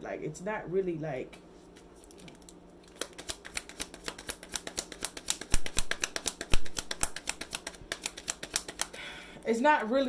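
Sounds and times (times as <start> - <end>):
cards being shuffled: 1.8 - 8.9
card slaps: 3.0 - 8.9.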